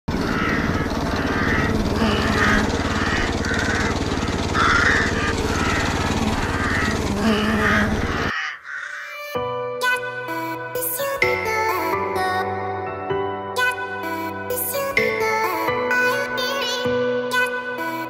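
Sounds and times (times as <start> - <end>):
bar mower engine running: 0.0 - 8.3.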